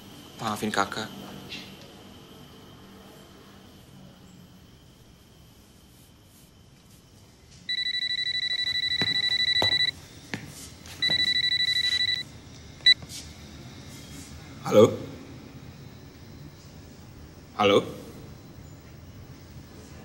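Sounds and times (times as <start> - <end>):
mobile phone ringing: 7.7 - 9.9, 11.0 - 12.2.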